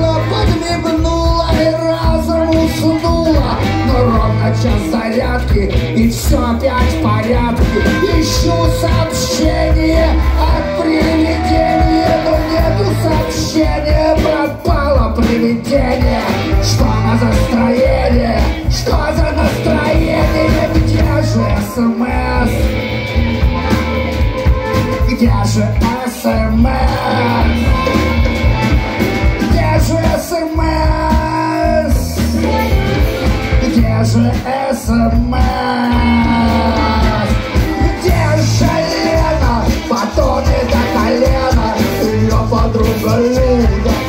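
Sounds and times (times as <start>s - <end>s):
rock band playing: 0.0s - 44.0s
harmonica wailing: 6.8s - 14.9s, 15.8s - 34.0s, 35.2s - 44.0s.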